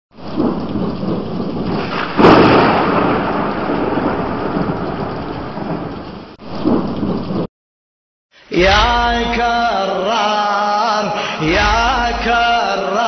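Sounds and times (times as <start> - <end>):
steady rain: 0.2 - 7.5
thunder crack: 0.2 - 7.5.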